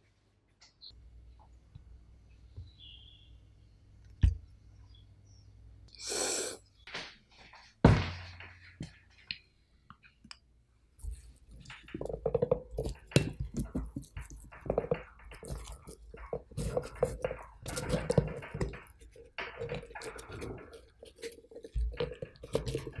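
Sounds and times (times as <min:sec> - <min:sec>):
coconut shell crackling and creaking: 0:11.0 - 0:23.0.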